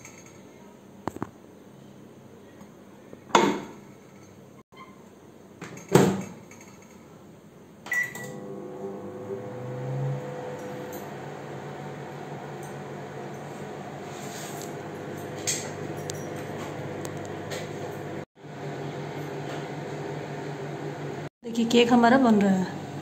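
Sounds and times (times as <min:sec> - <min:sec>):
microwave running hum: 0:07.9 - 0:23.0.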